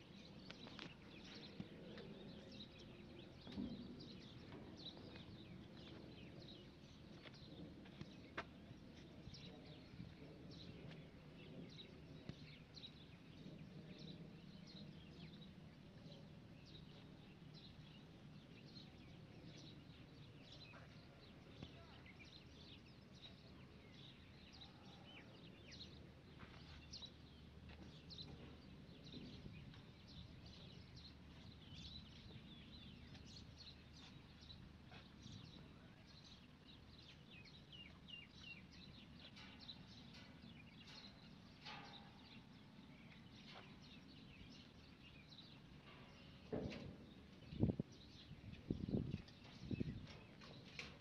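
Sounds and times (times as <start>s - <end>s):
small birds chirping: 0.0s - 51.0s.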